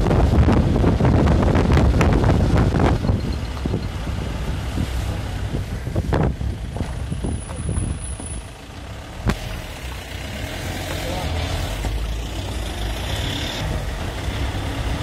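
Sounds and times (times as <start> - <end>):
wind buffeting microphone: 0.0 - 8.5
engine and road rumble: 0.0 - 15.0.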